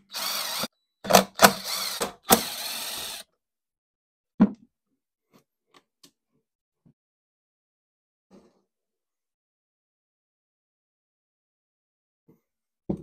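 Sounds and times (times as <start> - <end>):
cordless drill spinning screws: 0.0 - 3.2.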